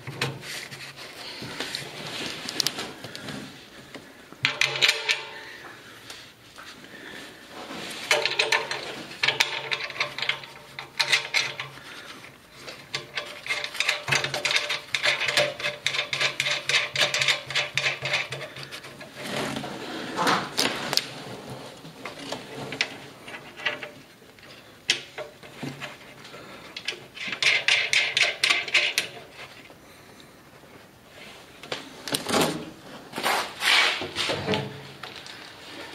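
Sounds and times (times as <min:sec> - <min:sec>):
rapid metallic clicking and rasping: 0:08.1 - 0:11.8, 0:12.7 - 0:19.3, 0:26.8 - 0:29.6.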